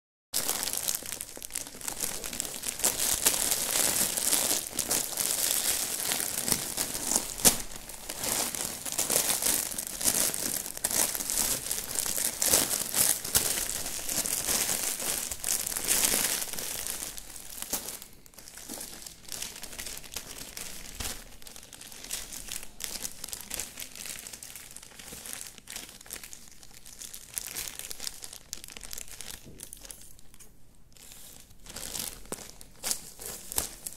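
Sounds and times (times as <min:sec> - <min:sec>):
plastic bags crinkling: 0:00.4 - 0:33.9.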